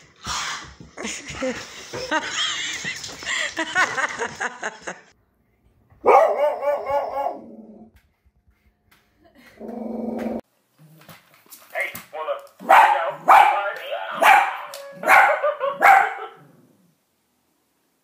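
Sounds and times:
dog barking and howling: 0:06.0 - 0:07.5, 0:12.6 - 0:16.4.

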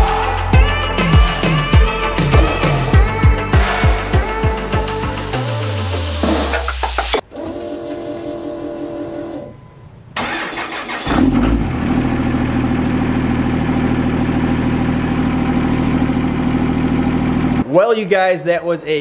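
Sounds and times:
diesel engine idling: 0:11.7 - 0:17.6.

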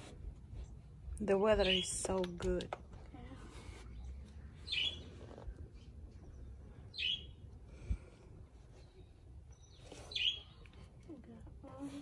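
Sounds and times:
songbird chirping: 0:03.6 - 0:07.7, 0:08.6 - 0:11.4.

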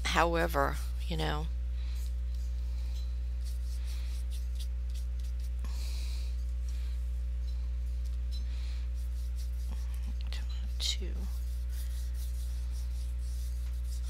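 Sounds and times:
low hum: 0:00.0 - 0:14.0
paintbrush strokes on paper: 0:03.4 - 0:05.8, 0:08.8 - 0:14.0.

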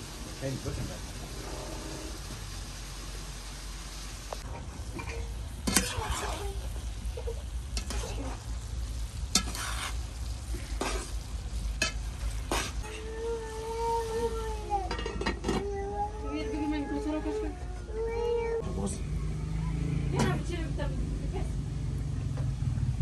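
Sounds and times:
food sizzling in a pan: 0:00.0 - 0:18.2
utensil scraping and knocking pan: 0:09.3 - 0:10.0.

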